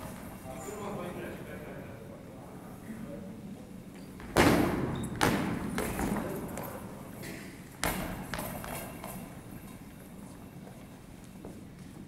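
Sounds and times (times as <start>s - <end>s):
ball thudding on gym floor: 4.2s - 6.3s.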